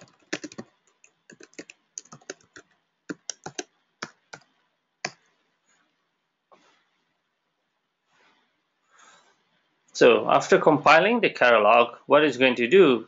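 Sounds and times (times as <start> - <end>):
computer keyboard typing: 0.0 - 5.2.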